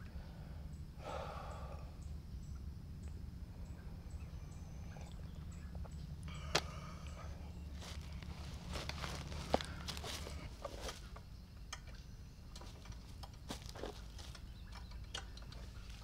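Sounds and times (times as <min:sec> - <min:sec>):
steady low hum: 0:00.0 - 0:16.0
soft rustle: 0:07.7 - 0:11.2.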